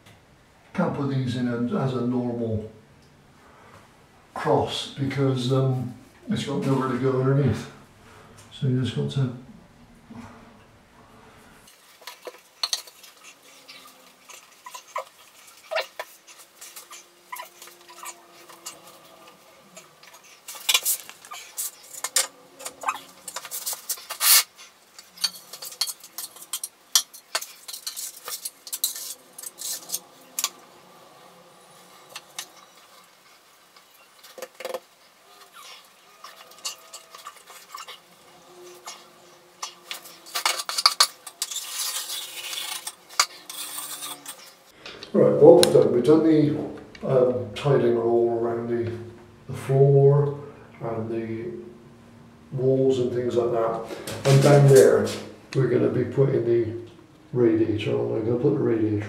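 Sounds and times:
trowel scraping and clinking: 0:20.0 - 0:30.6, 0:39.6 - 0:44.6.

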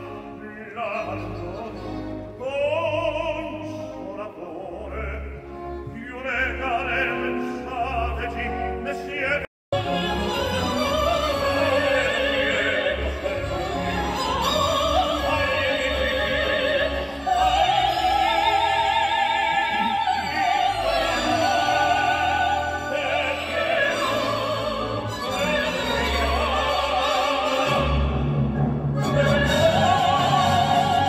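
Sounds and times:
man singing opera: 0:00.0 - 0:28.2, 0:29.0 - 0:31.0
symphony orchestra: 0:00.0 - 0:31.0
soprano singing opera: 0:09.8 - 0:28.1, 0:29.0 - 0:31.0.

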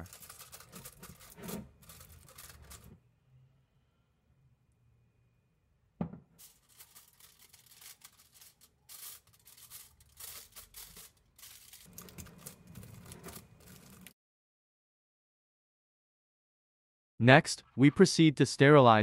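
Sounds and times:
aluminium foil crinkling: 0:00.0 - 0:03.0, 0:06.4 - 0:14.1
thump: 0:06.0 - 0:06.3.

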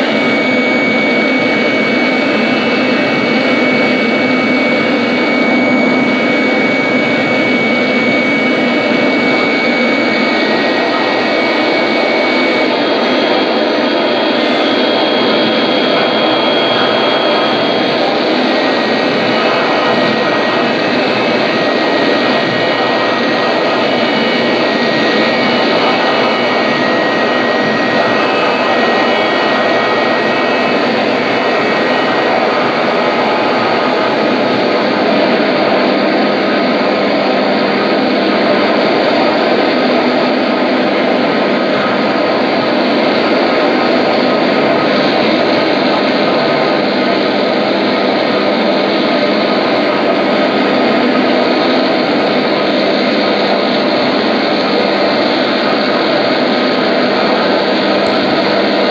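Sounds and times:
dense wash of noise music: 0:00.0 - 0:37.6.

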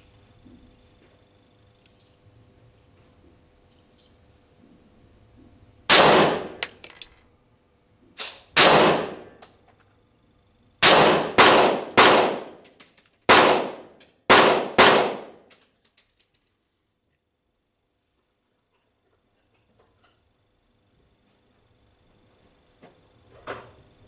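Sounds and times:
pistol shots: 0:05.9 - 0:06.6, 0:08.6 - 0:09.3, 0:10.8 - 0:12.6, 0:13.3 - 0:15.4.

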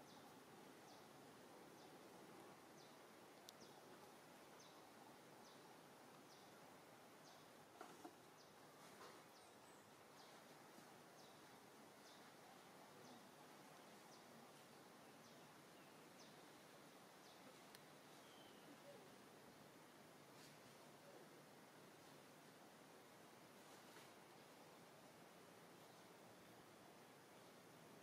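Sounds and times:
outdoor background hiss: 0:00.0 - 0:28.0
soft clicks: 0:03.3 - 0:03.7, 0:17.7 - 0:17.9.

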